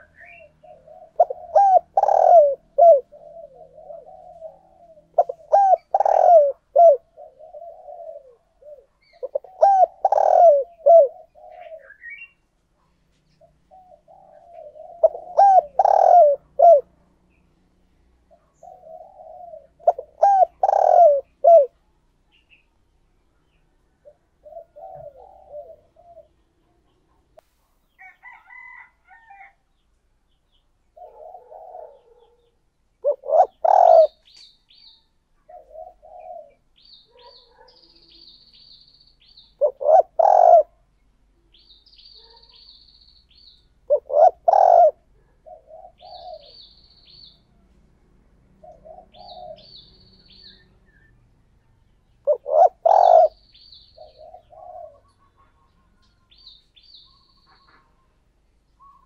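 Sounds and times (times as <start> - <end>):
doves cooing: 0.0 - 12.4, 13.3 - 17.1, 18.3 - 21.8, 24.0 - 27.3, 31.0 - 34.4, 35.4 - 38.2, 39.6 - 40.9, 43.9 - 47.4, 48.5 - 50.8, 52.2 - 58.2
small bird chirping: 31.8 - 40.6, 41.5 - 44.9, 45.9 - 47.5, 48.7 - 59.0.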